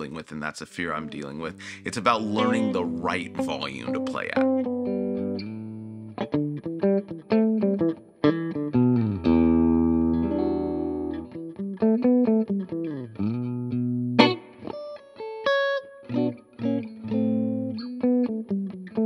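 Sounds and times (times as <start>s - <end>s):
electric guitar lead: 0.9s - 19.0s.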